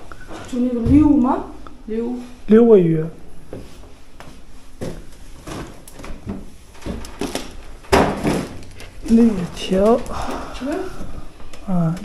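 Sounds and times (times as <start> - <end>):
boxes knocking and rustling: 4.8 - 10.1.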